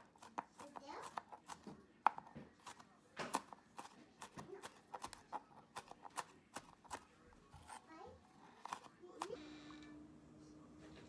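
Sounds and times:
knife chopping on cutting board: 0:00.0 - 0:07.0.

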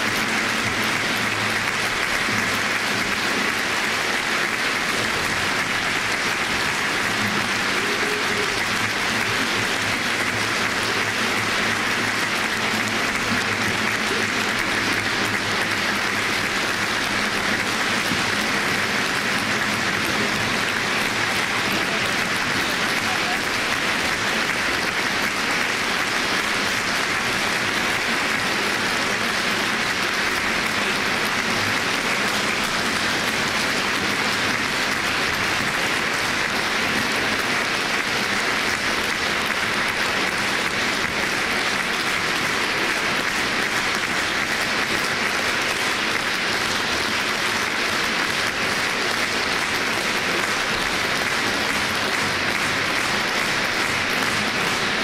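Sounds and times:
audience applauding: 0:00.0 - 0:55.0.

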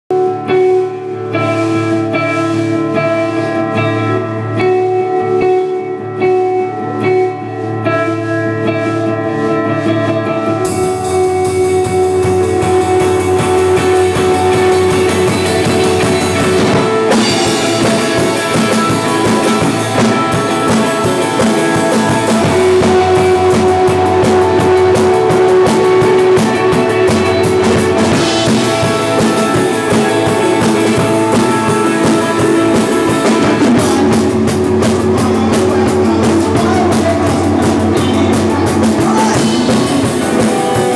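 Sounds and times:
electric guitar: 0:00.0 - 0:40.9
live rock band playing: 0:00.1 - 0:40.9.

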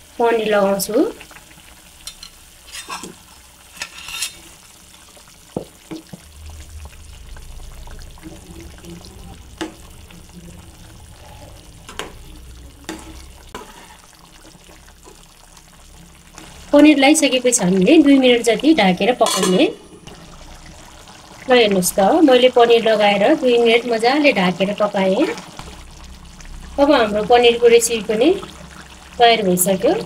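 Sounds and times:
gravy bubbling: 0:01.0 - 0:02.1, 0:04.4 - 0:23.8, 0:24.4 - 0:30.0
metal ladle scraping a bowl: 0:02.1 - 0:04.6, 0:19.2 - 0:19.6
ladle clinking against pan: 0:19.2 - 0:19.6.

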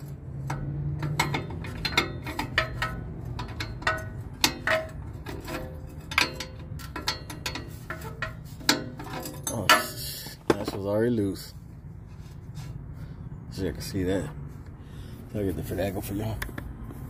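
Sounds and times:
metal wrench clicking: 0:00.0 - 0:10.2.

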